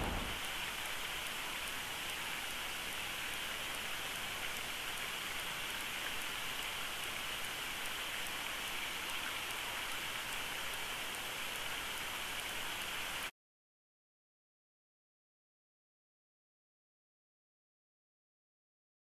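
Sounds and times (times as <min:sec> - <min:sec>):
steady outdoor hiss: 0:00.0 - 0:13.3.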